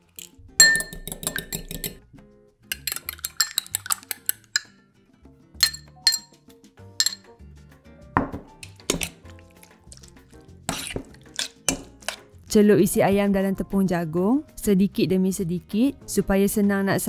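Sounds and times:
fork clinking against glass bowl: 0.1s - 2.0s, 2.7s - 4.7s, 5.6s - 6.4s, 7.0s - 7.3s, 8.6s - 12.2s.

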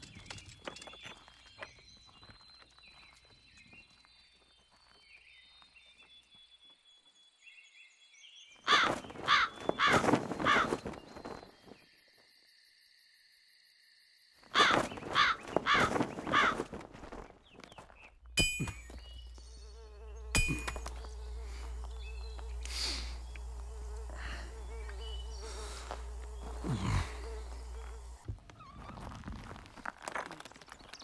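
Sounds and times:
crow cawing: 8.7s - 10.8s, 14.5s - 16.7s.

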